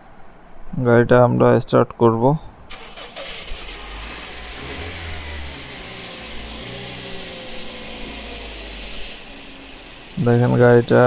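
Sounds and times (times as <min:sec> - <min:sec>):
van engine idling: 0:02.7 - 0:11.0.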